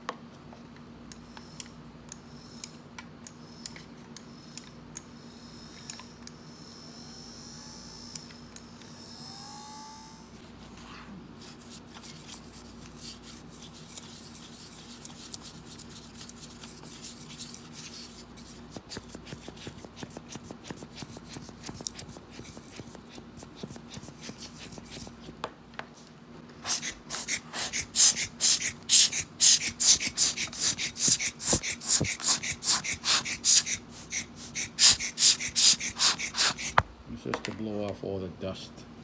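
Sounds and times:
brush scrubbing plastic: 26.6s - 36.8s.

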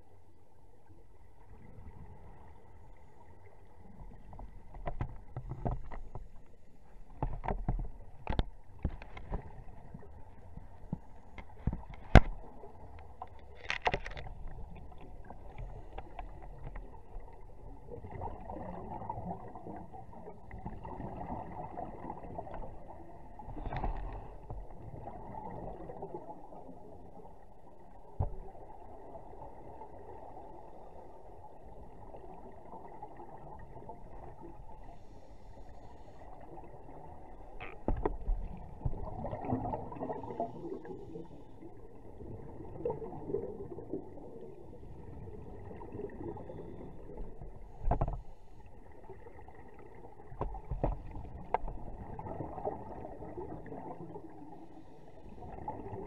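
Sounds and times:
rushes of bubbles: 13.8s - 27.1s, 36.2s - 47.9s, 48.7s - 54.6s, 55.2s - 56.0s.

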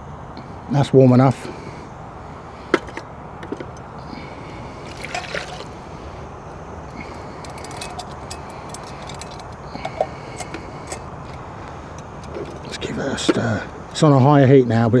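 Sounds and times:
water pouring into a pot: 4.9s - 5.7s.

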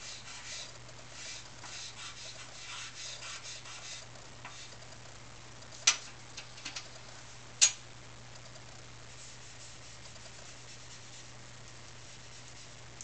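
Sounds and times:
charcoal scratching on paper: 0.0s - 4.8s, 9.1s - 11.3s, 12.0s - 12.8s.

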